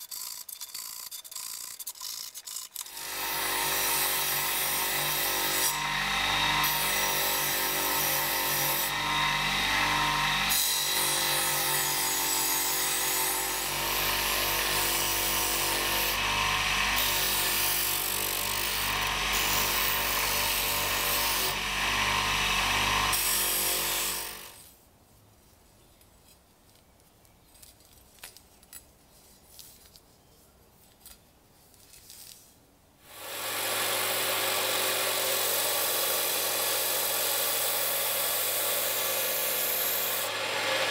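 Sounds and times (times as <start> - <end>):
belt grinder running: 0.0 - 24.6, 33.1 - 40.9
bench grinder wire brush on steel: 0.0 - 24.7, 33.2 - 40.9.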